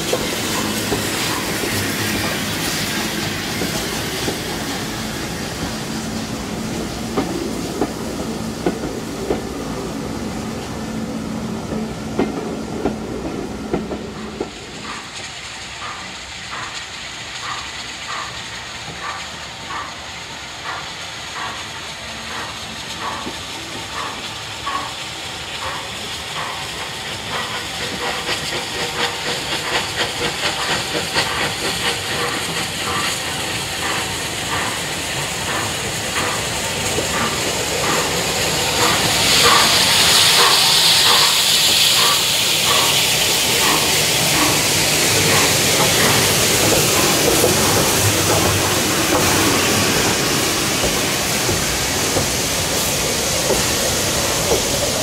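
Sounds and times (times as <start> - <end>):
steam locomotive chuffing: 0.0 - 55.0.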